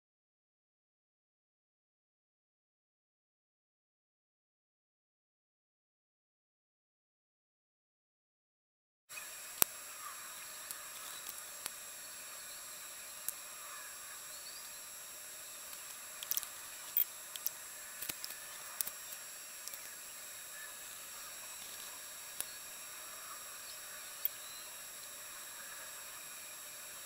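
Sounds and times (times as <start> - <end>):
faint hiss: 9.1 - 27.0
high-pitched electronic whine: 9.1 - 27.0
computer mouse clicking: 15.7 - 20.0.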